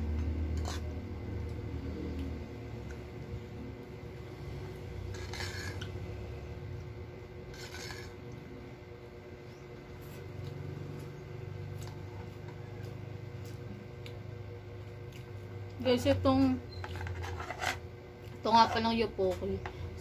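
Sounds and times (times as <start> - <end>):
low hum: 0.0 - 20.0
metal fork scraping food tray: 0.5 - 1.0, 5.0 - 6.0, 7.5 - 8.2, 16.7 - 17.8
chewing clicks: 14.0 - 14.2.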